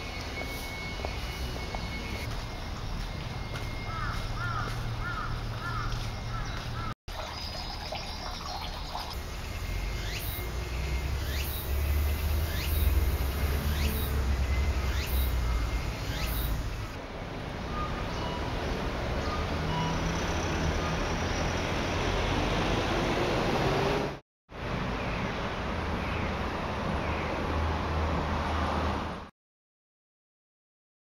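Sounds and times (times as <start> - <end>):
low rumble of city traffic: 0.0 - 29.3
birds chirping: 0.3 - 17.0.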